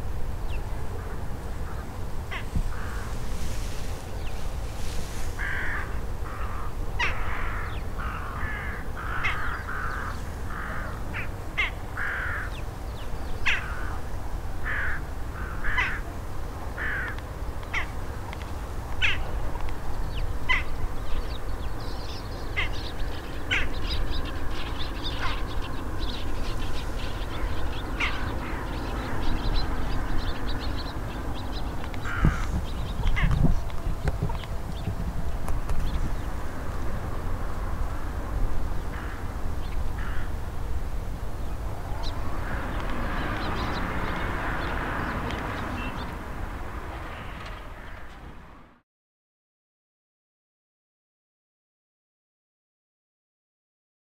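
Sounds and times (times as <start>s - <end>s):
jackdaws calling: 1.6s - 3.3s, 5.3s - 12.6s, 13.4s - 14.0s, 14.6s - 16.1s, 16.8s - 18.0s, 19.0s - 19.3s, 20.4s - 20.8s, 22.0s - 33.5s, 38.9s - 40.4s.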